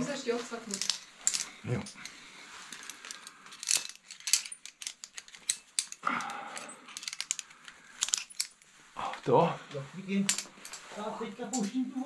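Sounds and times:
carabiners clicking and jingling: 0.6s - 8.7s, 10.2s - 10.9s.

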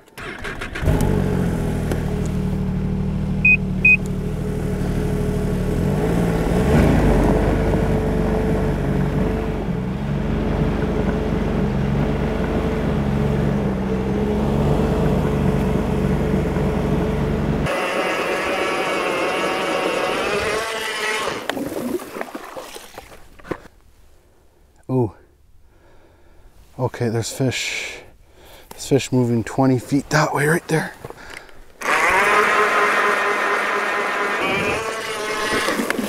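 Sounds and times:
snowmobile engine running: 0.6s - 21.8s, 31.8s - 36.0s
short high beeps: 34.4s - 34.8s.

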